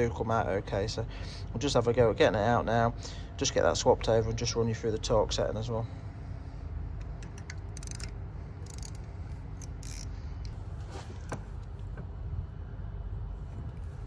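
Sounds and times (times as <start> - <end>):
ratchet clicking: 7.0 - 10.6.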